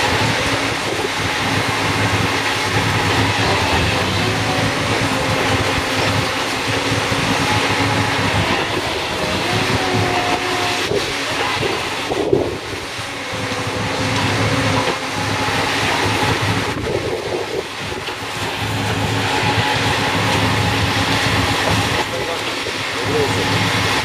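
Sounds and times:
heavy machinery running: 0.0s - 24.0s
low hum: 0.0s - 24.0s.

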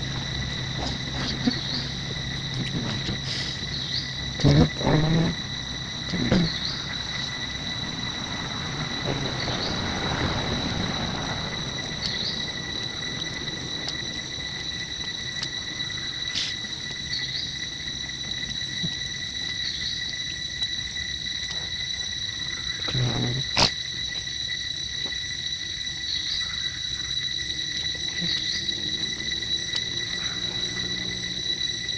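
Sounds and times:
insects droning: 0.0s - 31.9s.

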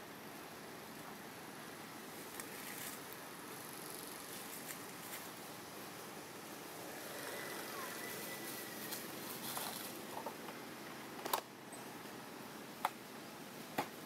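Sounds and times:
outdoor background hiss: 0.0s - 14.0s
thin high whistling tone: 7.3s - 9.0s.

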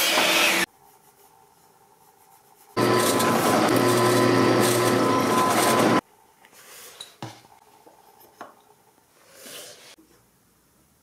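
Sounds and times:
drill press cutting plywood: 2.8s - 6.0s.

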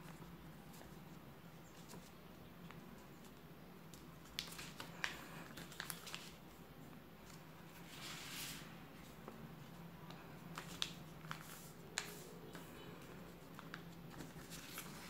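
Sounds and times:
paper crinkling and crackling: 0.0s - 15.0s
paper sliding rustle: 7.2s - 9.4s, 10.1s - 15.0s.

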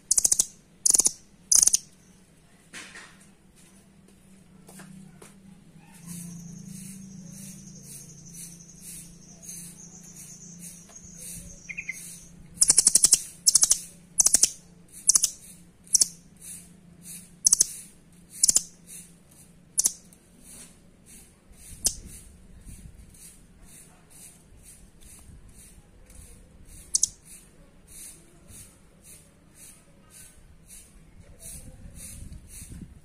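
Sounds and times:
bird calling with sharp ticking notes: 0.0s - 2.0s, 6.1s - 19.0s, 19.8s - 20.1s, 26.8s - 28.1s.

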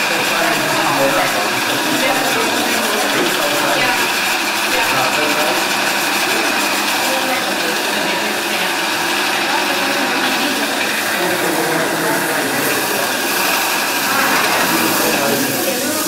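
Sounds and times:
stone grinding wheel grinding enamel: 0.0s - 16.0s.

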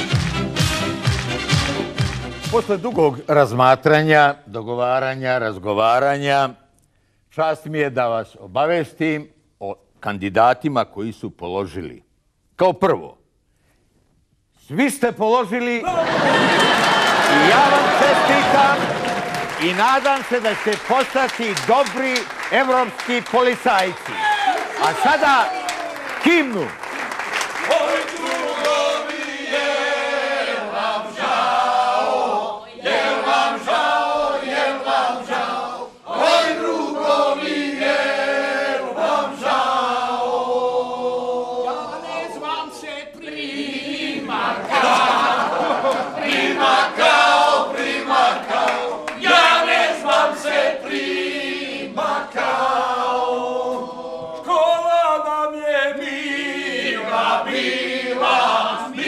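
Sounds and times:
group singing an anthem: 27.6s - 54.7s, 55.7s - 59.0s.

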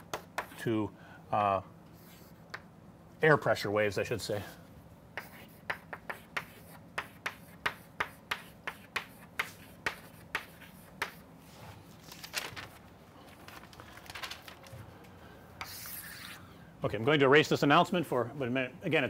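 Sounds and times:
chalk tapping on a blackboard: 0.0s - 0.6s, 5.1s - 11.3s, 15.6s - 16.3s.

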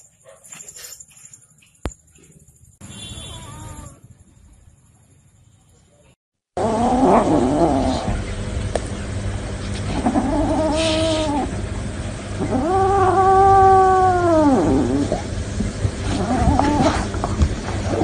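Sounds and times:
kitten yowling: 3.3s - 4.0s, 10.0s - 11.5s, 12.4s - 15.2s, 16.2s - 17.0s.

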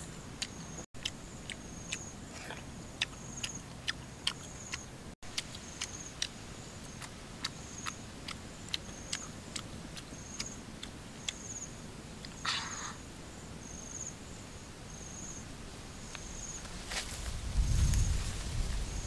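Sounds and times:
person chewing: 0.4s - 11.4s
insect chirping in high trills: 11.2s - 16.7s.

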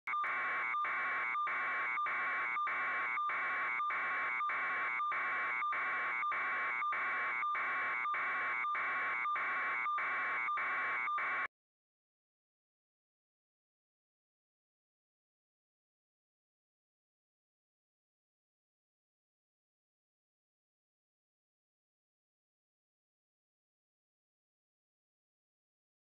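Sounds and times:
pulsing electronic buzzer: 0.1s - 11.5s.

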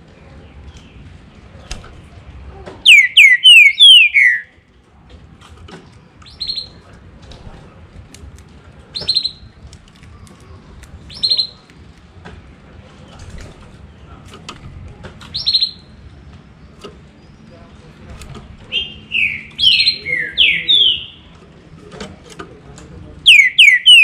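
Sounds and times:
bird singing whistles: 2.9s - 4.5s, 18.7s - 21.2s, 23.3s - 24.0s
short sharp bird calls: 2.9s - 4.5s.

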